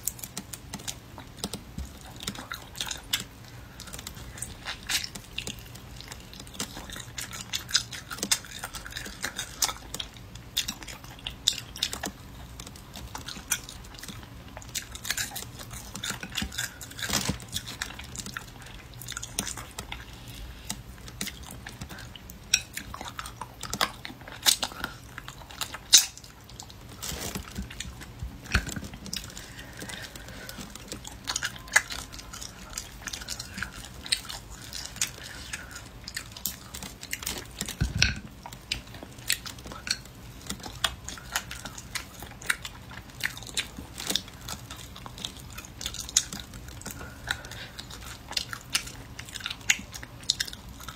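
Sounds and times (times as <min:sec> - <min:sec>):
chewing meat on the bone: 0:00.0 - 0:50.9.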